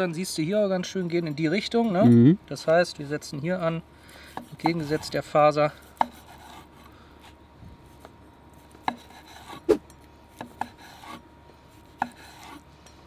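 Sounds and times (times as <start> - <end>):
knife slicing meat: 11.9 - 12.6.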